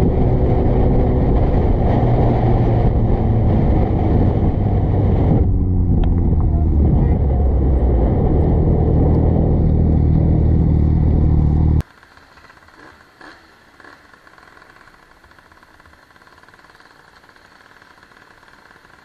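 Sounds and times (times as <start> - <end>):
motorcycle engine and wind rumble: 0.0 - 11.8
low motorcycle engine: 0.0 - 19.0.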